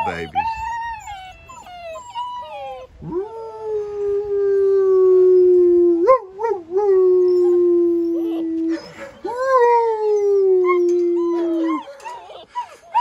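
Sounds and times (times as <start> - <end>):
puppy yelping: 0.0 - 3.2, 7.3 - 9.9, 10.6 - 13.0
puppy howling: 0.0 - 13.0.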